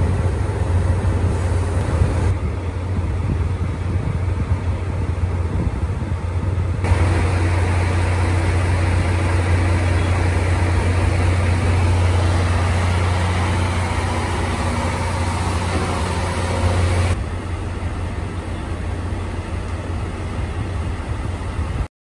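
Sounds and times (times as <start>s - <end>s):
locomotive diesel engine humming: 0.0s - 21.9s.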